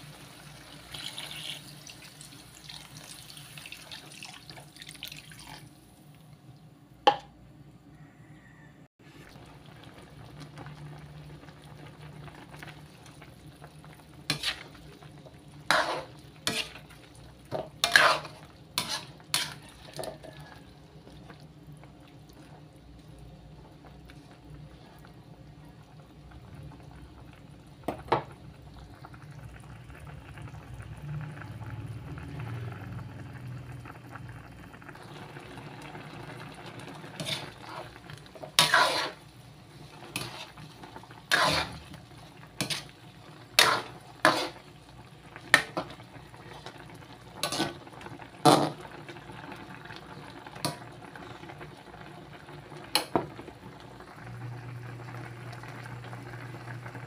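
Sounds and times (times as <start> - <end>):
sauce bubbling in a wok: 0.0 - 6.5, 9.0 - 57.0
metal spatula scraping a pan: 14.3 - 14.8, 15.6 - 16.9, 17.5 - 20.5, 37.2 - 39.3, 40.1 - 40.7, 41.3 - 42.0, 42.6 - 44.7, 47.4 - 47.8.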